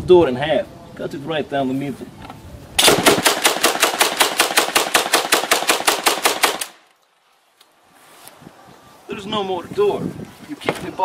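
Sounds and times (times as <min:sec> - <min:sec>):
automatic shotgun burst: 0:02.8 - 0:06.8.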